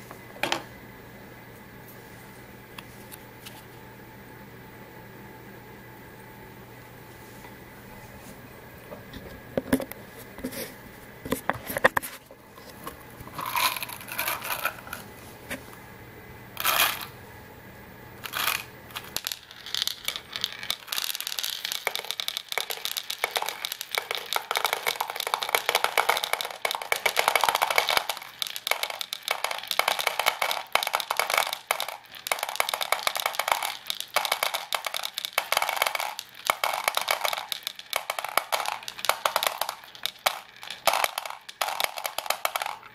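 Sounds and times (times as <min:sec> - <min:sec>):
ball bearings clattering on plastic: 0:12.6 - 0:15.1, 0:16.6 - 0:17.1, 0:18.2 - 0:42.9.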